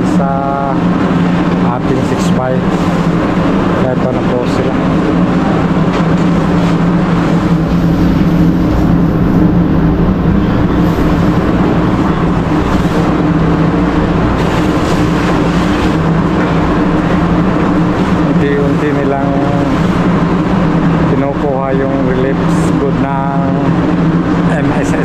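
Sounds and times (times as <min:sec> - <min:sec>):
machinery drone: 0:00.0 - 0:25.0.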